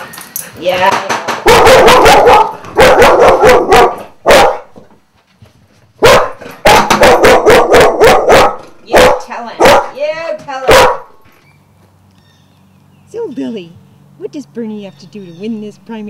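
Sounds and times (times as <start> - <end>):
dog barking: 1.4 - 4.7, 6.0 - 10.0, 10.6 - 11.2.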